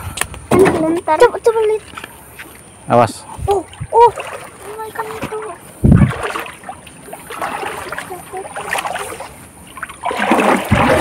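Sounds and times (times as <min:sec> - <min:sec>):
shallow river water sloshing: 0:03.5 - 0:11.0
water splash: 0:03.6 - 0:11.0.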